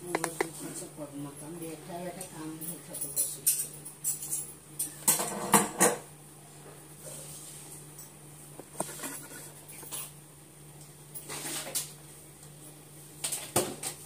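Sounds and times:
knocks and clicks of handling: 0.1 - 0.5.

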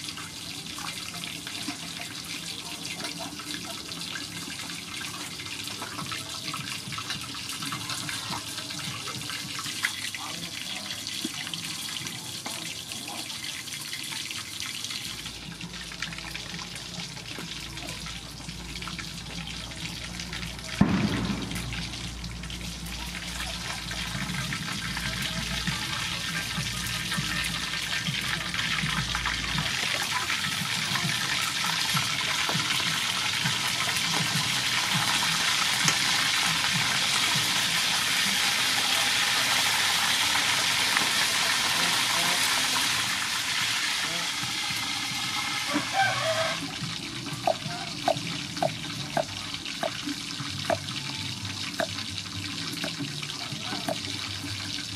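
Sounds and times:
fish sizzling in hot oil: 0.0 - 54.9
loud thump: 20.8 - 22.1.

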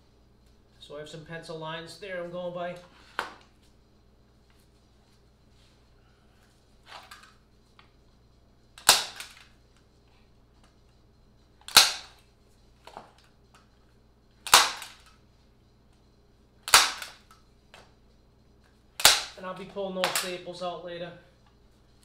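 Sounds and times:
staple gun snapping into plywood: 8.8 - 9.4, 11.7 - 12.1, 14.5 - 15.1, 16.7 - 17.2, 19.0 - 19.4.

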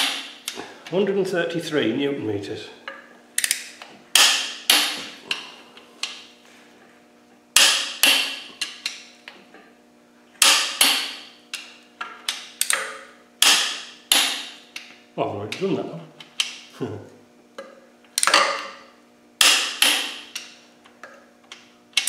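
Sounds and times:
torque wrench clicking: 3.4 - 4.3, 12.2 - 14.9.

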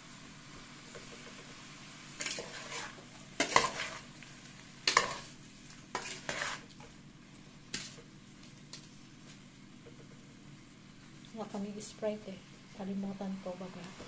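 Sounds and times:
metal spoon scraping a pot: 2.2 - 4.0, 5.9 - 6.7.

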